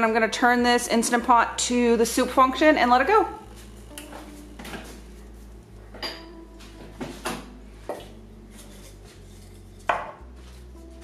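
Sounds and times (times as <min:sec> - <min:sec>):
metal pot clinking: 0:05.9 - 0:06.4.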